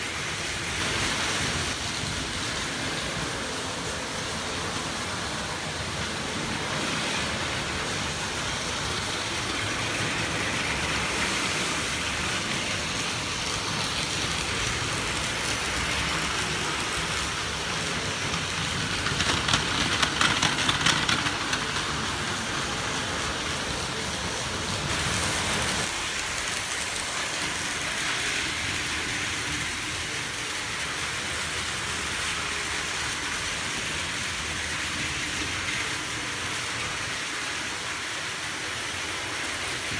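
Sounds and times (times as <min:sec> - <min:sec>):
toy train motors whirring: 0:00.0 - 0:39.9
train clicking over track joints: 0:00.0 - 0:39.9
plastic wheels rattling: 0:07.3 - 0:22.4.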